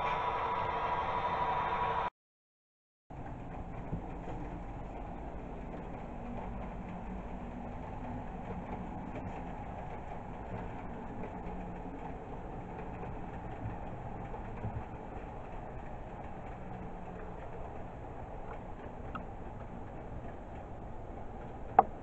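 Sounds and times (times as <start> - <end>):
model train running on track: 0.0 - 2.1, 3.1 - 22.0.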